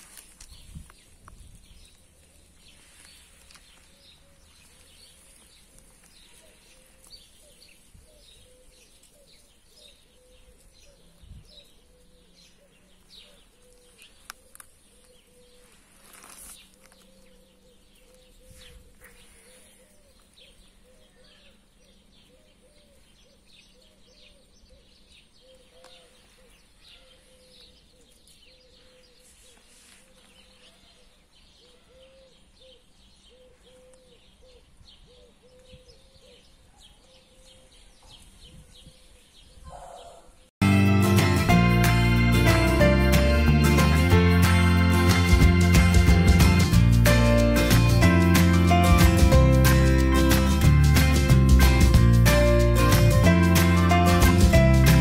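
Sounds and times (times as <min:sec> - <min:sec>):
faint birds chirping: 0:00.0 - 0:40.6.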